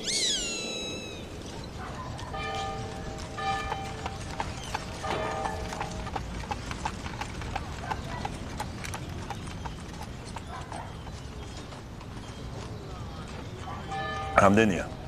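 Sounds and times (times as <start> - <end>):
short pitched call: 0.0 - 1.4
horse hooves clip-clopping: 1.3 - 14.3.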